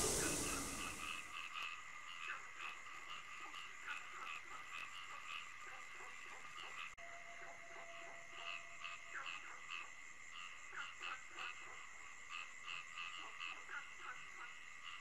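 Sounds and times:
frogs croaking: 0.0 - 1.0, 1.7 - 15.0
high insect drone: 0.0 - 1.1.

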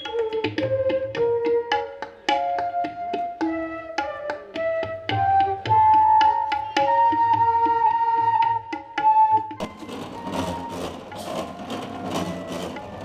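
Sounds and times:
wavering held melody: 0.0 - 13.0
hand drum strokes: 9.5 - 13.0.

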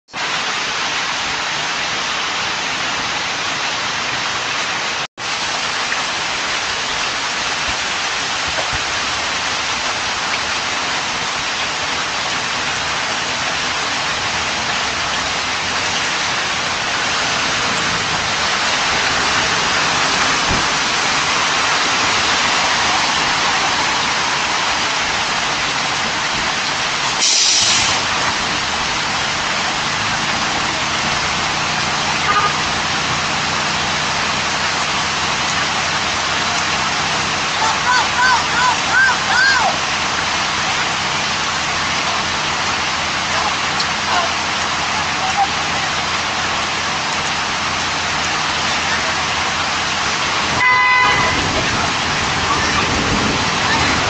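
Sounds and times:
heavy rain falling: 0.1 - 54.0
air brakes hissing: 27.2 - 28.1.

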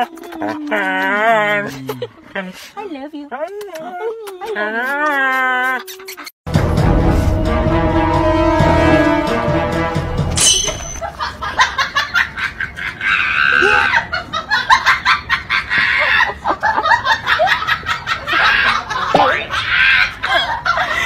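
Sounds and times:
person laughing hard: 0.0 - 2.2, 11.0 - 21.0.

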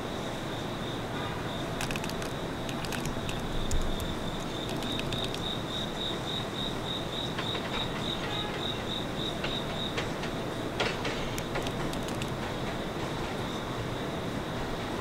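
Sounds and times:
crickets chirping: 0.0 - 15.0
subway train rumble: 0.0 - 15.0
light clicks: 1.8 - 5.5.

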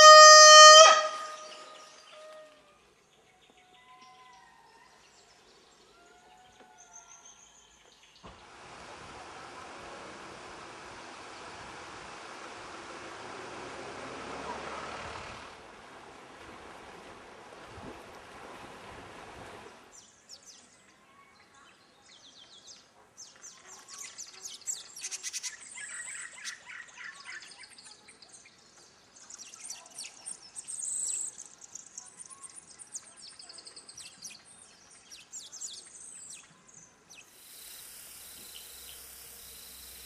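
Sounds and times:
forest birds chirping: 0.0 - 8.6, 19.9 - 40.0.

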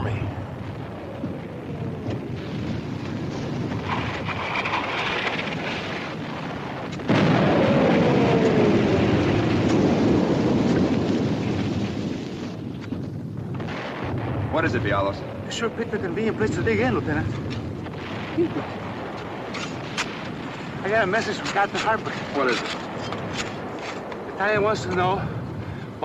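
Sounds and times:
artillery rumbling roar: 0.0 - 12.3
shell burst with long rumble: 0.0 - 26.0.

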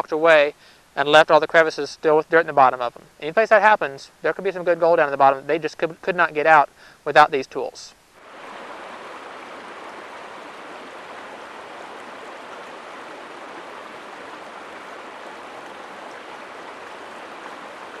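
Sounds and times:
river rushing over rocks: 8.2 - 18.0.

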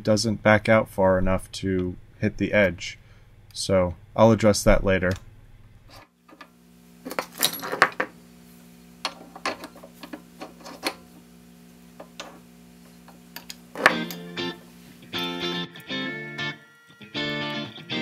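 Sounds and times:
steady low hum: 0.0 - 18.0
metal chips clinking and scraping: 7.1 - 8.1, 9.1 - 11.1.

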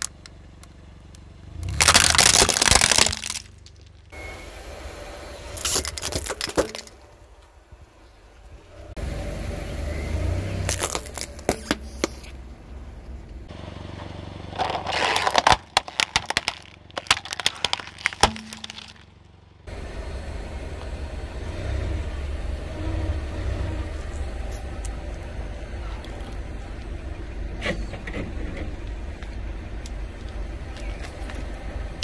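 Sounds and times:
plastic cracking under tyre: 0.0 - 0.8, 1.6 - 4.1, 5.6 - 7.0, 10.7 - 12.2, 14.5 - 19.1
tyre rumbling on asphalt: 0.0 - 4.2, 5.5 - 7.8, 10.4 - 19.7.

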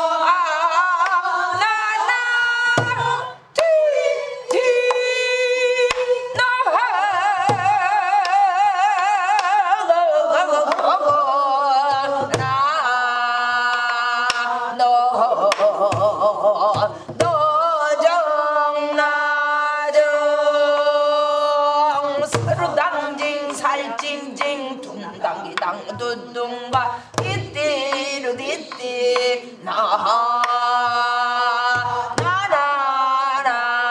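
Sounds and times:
wordless vocal singing with vibrato: 0.0 - 33.9
barrel drum thumps: 2.7 - 3.2, 26.8 - 27.6.

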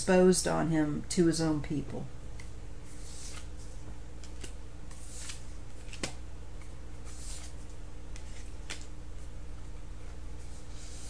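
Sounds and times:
low electrical hum: 0.0 - 11.0
cards rustling: 2.8 - 6.2, 7.0 - 9.3.

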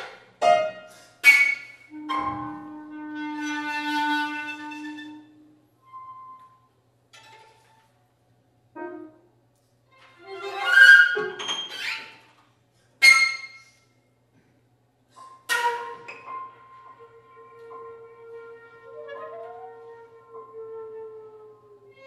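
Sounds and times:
chamber music ensemble: 15.5 - 22.0.

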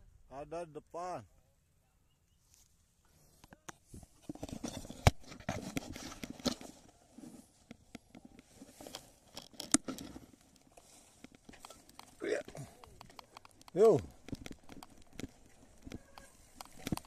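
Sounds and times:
bike tyres crunching on dirt: 4.5 - 17.0
bike rattling over bumps: 8.2 - 17.0.

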